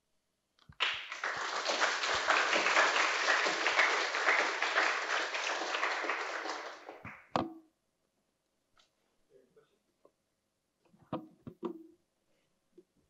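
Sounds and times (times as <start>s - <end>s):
audience applauding: 0.7s - 7.3s.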